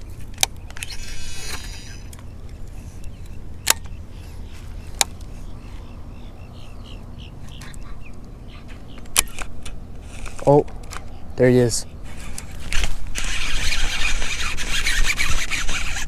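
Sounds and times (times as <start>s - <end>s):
fishing reel spool whirring: 0.3s - 4.0s, 12.0s - 16.0s
sharp reel clicks: 0.4s - 2.6s, 12.1s - 16.0s.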